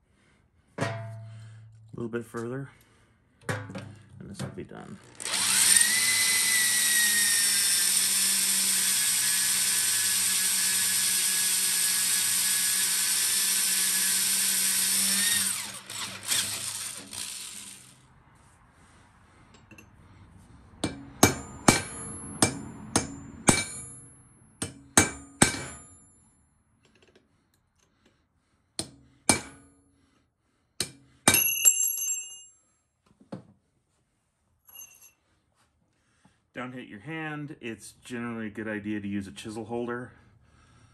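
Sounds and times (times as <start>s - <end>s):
electric drill boring into steel: 5.0s - 18.0s
hammer striking chisel: 20.8s - 25.9s, 28.8s - 29.7s, 30.8s - 32.4s.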